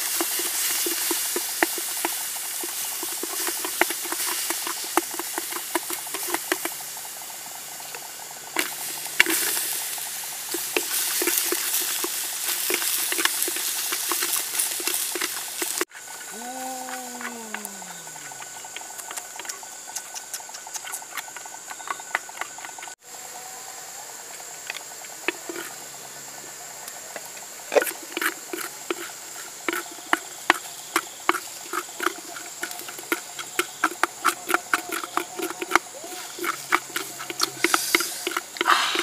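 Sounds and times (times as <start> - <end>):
vegetables sizzling in hot oil: 0.0 - 16.5, 26.6 - 39.0.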